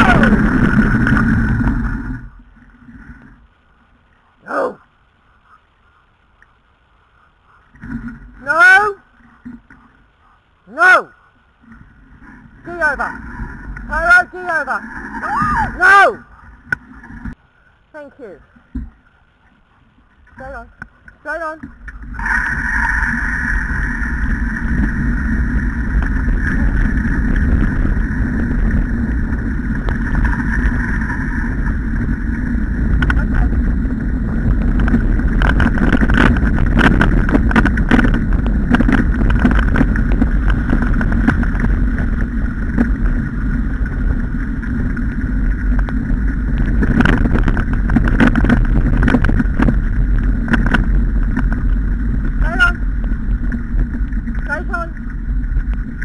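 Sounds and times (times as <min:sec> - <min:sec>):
rig rumbling over gravel: 0:00.0 - 0:03.6, 0:11.8 - 0:17.4, 0:21.2 - 0:56.0
steady high whine: 0:20.2 - 0:56.0.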